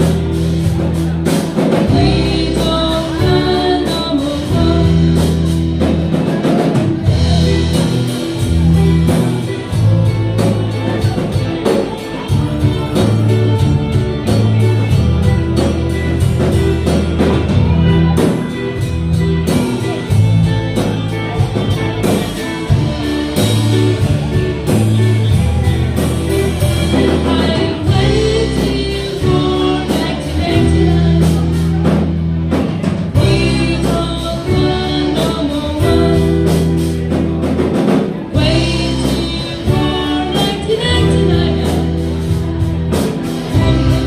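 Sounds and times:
bass guitar: 0:00.0 - 0:44.0
drum kit: 0:00.0 - 0:44.0
electric guitars: 0:00.0 - 0:44.0
lead vocal singing: 0:01.5 - 0:05.6, 0:26.8 - 0:37.1, 0:38.2 - 0:42.3.

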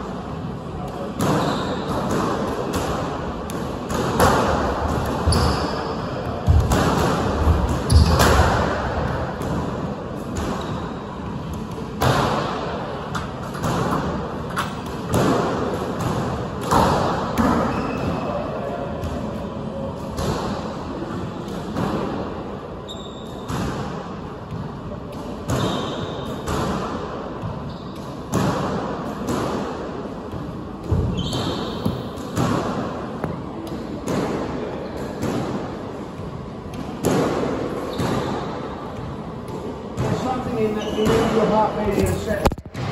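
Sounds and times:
squash ball hitting rackets and walls: 0:00.0 - 0:42.9
shoes squeaking on wooden floor: 0:05.3 - 0:05.7.

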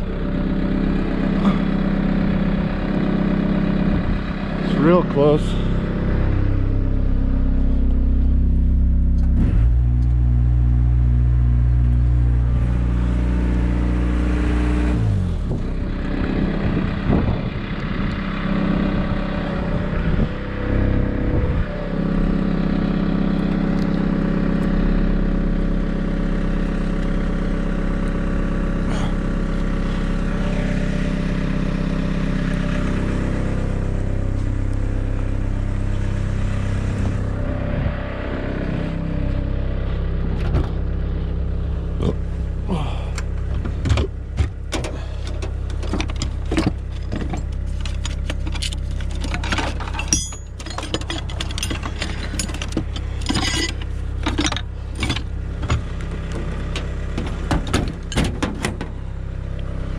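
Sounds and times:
excavator diesel engine running: 0:00.0 - 0:59.9
irregular clatter: 0:43.6 - 0:59.0.

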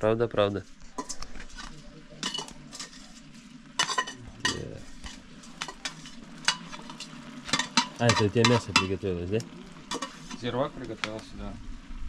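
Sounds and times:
meat and onions sizzling in a pot: 0:00.0 - 0:12.0
metal utensil scraping a pot: 0:00.6 - 0:09.1, 0:09.8 - 0:10.6.

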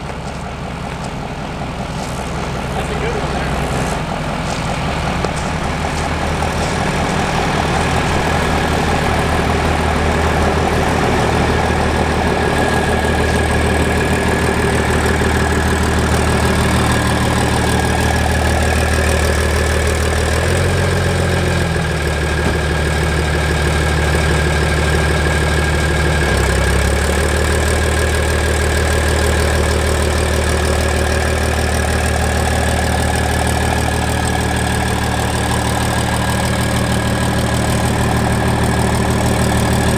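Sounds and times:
high whine: 0:00.0 - 0:19.4
diesel truck engine idling: 0:00.0 - 0:39.9.

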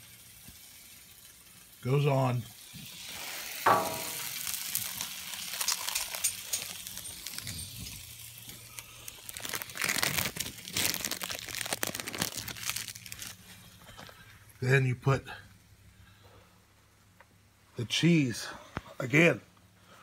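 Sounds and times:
plastic wrapping crinkling: 0:03.7 - 0:14.3.

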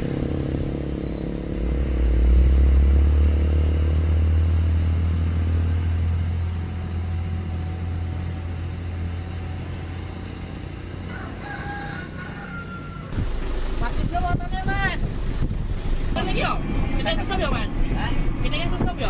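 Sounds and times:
diesel truck engine pulling away: 0:00.0 - 0:19.0
rooster crowing: 0:10.8 - 0:13.2.

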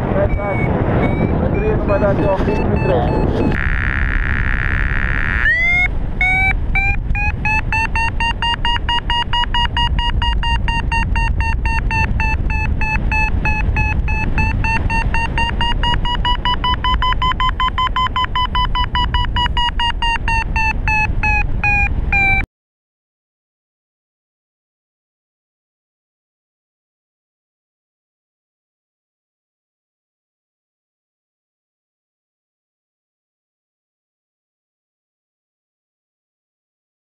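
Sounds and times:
wind rush on microphone: 0:00.0 - 0:22.4
variometer rapid beeps: 0:00.2 - 0:22.5.

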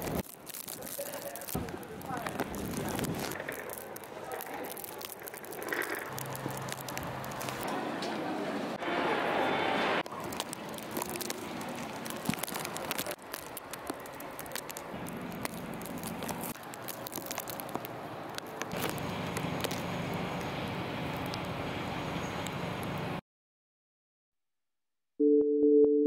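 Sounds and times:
small crackles and clicks: 0:00.0 - 0:07.7, 0:10.0 - 0:21.6
traffic noise: 0:00.0 - 0:23.2.

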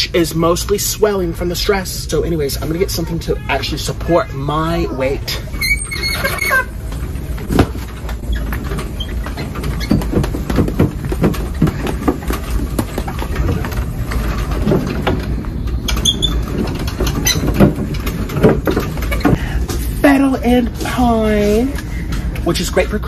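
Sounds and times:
mobility scooter rumbling: 0:00.0 - 0:23.0
small rattles and knocks: 0:06.0 - 0:19.9.

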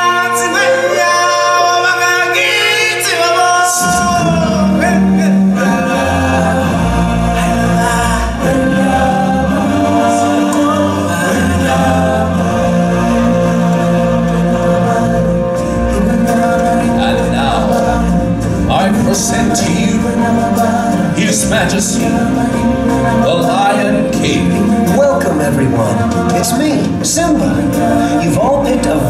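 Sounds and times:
amplified backing music: 0:00.0 - 0:29.0
singers singing in harmony: 0:00.0 - 0:29.0.

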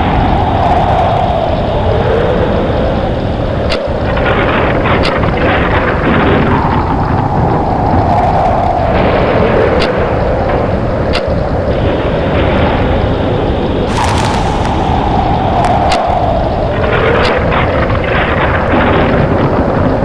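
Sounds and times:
tornado wind rushing and howling: 0:00.0 - 0:20.0.

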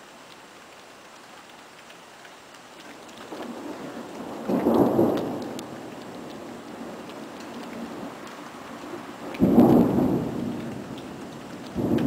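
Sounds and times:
steady rain falling: 0:00.0 - 0:12.0
thunder rolling: 0:09.4 - 0:10.9, 0:11.7 - 0:12.0.

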